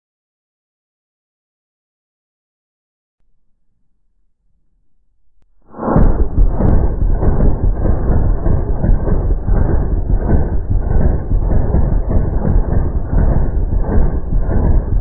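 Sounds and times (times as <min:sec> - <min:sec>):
slowed rifle fire rumble: 0:05.8 - 0:15.0.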